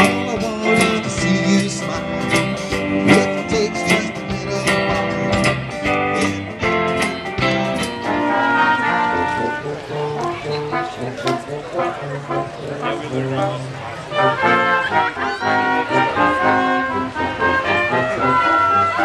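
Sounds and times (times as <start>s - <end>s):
drum kit beat: 0.0s - 8.4s
electric and bass guitars: 0.0s - 19.0s.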